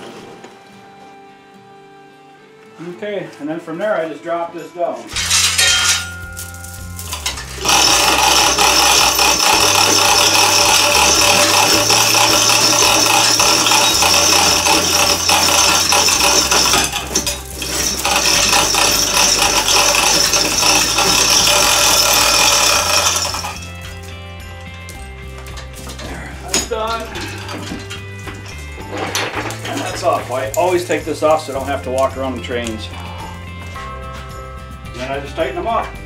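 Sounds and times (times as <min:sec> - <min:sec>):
chain rattling through hoist: 0:05.1 - 0:31.8.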